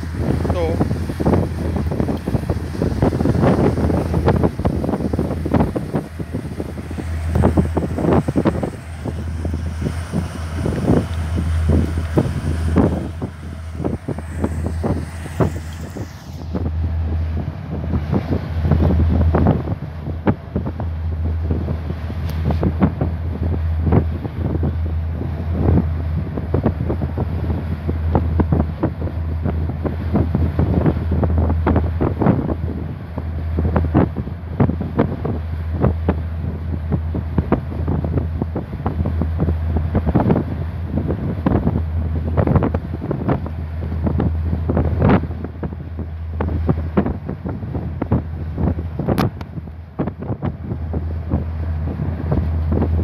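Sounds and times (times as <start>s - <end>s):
low drone: 0.0s - 53.0s
water rushing along hull: 0.0s - 53.0s
wind buffeting microphone: 0.0s - 53.0s.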